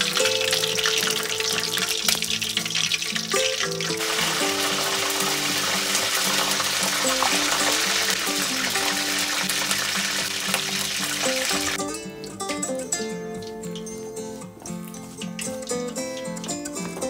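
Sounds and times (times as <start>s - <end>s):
water rushing: 0.0s - 11.9s
background music: 0.0s - 17.0s
hot oil crackling: 0.0s - 17.0s.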